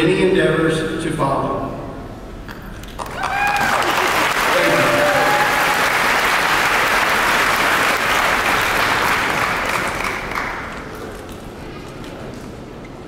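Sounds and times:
audience applauding: 2.9s - 11.4s.

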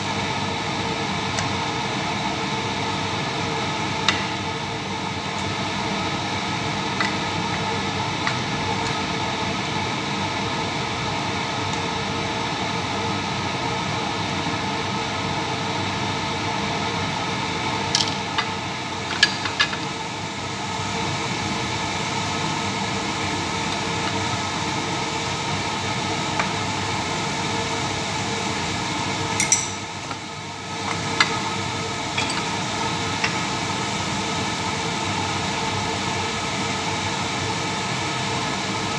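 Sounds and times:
tomatoes frying in a pan: 17.8s - 38.9s
spatula and glass jar clinking: 29.4s - 29.8s, 32.2s - 32.5s.

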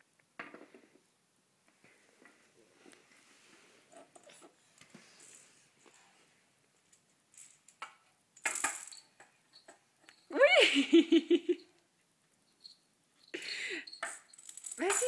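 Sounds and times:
toy cars clattering on ramp: 7.4s - 9.8s, 13.9s - 15.0s.

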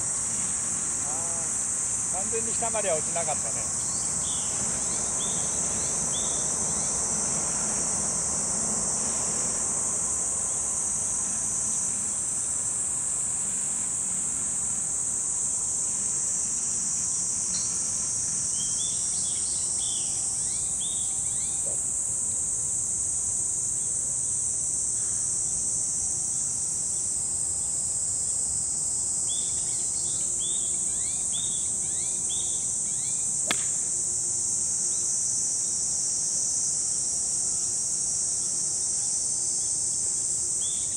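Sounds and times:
high-pitched insect drone: 0.0s - 40.9s
golf club striking ball: 33.4s - 33.9s.

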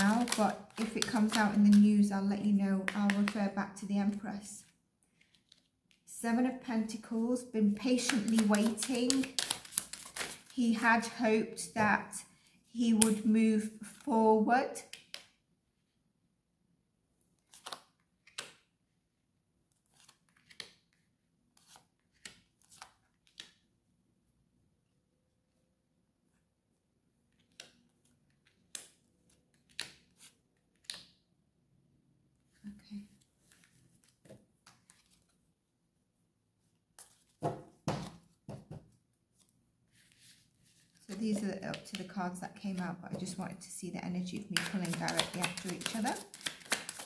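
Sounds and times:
cards rustling: 0.0s - 1.9s, 8.0s - 10.5s, 33.2s - 35.5s, 37.0s - 37.4s, 39.3s - 42.1s, 44.3s - 47.0s
cards knocking on table: 37.4s - 38.9s
cards swishing and slapping on table: 44.5s - 47.0s.

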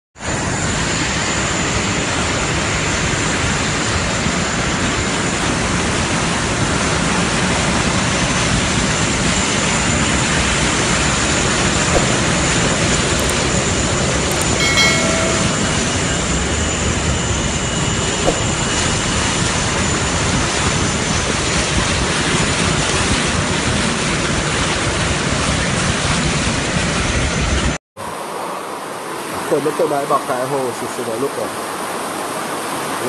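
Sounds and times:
click: 13.2s - 13.4s, 14.3s - 16.0s
short chime: 14.3s - 16.8s.

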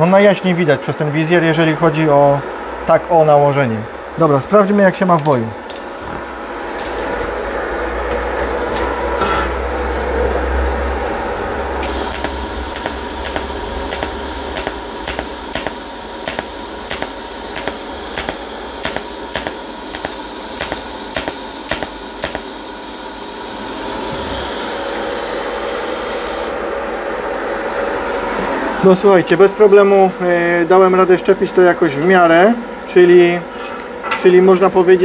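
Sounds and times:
short welding clicks: 11.8s - 22.6s
welder hiss: 11.8s - 26.6s.

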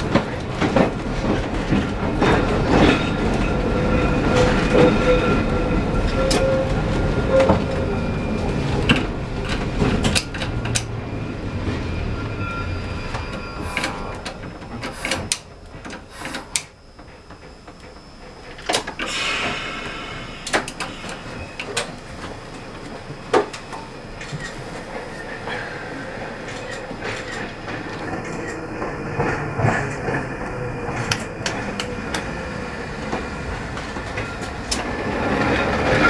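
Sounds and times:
tram rumbling along rails: 0.0s - 36.0s
brief high squeal: 11.9s - 14.2s, 19.1s - 21.7s.

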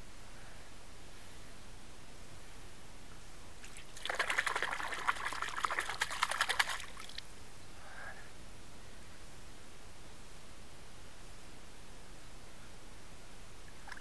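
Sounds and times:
water splashing: 3.6s - 7.2s.

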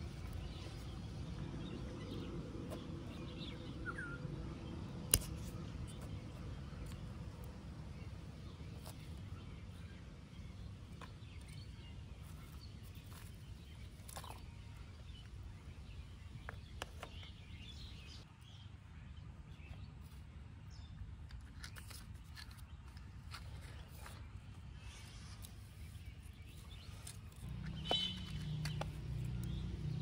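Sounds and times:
faint bird chirps: 23.9s - 29.6s.

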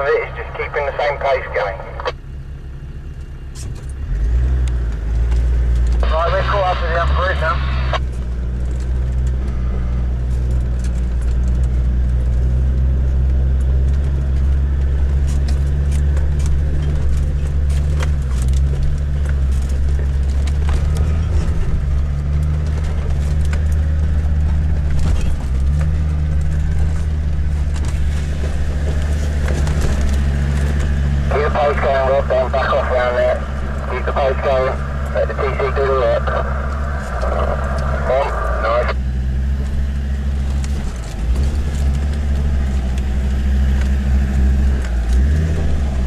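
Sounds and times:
diesel engine droning: 0.0s - 46.0s
vehicle knocks and rattles: 8.0s - 31.3s.

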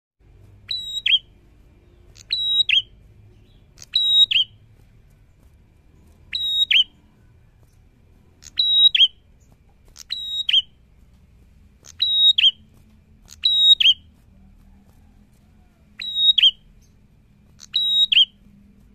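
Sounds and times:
bird whistled call: 0.7s - 1.3s, 2.1s - 2.9s, 3.8s - 4.6s, 6.3s - 7.2s, 8.4s - 9.2s, 10.0s - 10.8s, 11.8s - 12.6s, 13.3s - 14.1s, 16.0s - 16.9s, 17.6s - 18.4s.

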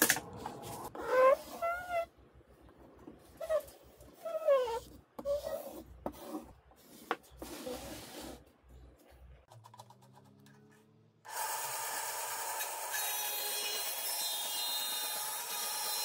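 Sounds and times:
marker scraping across plywood: 3.4s - 8.5s.

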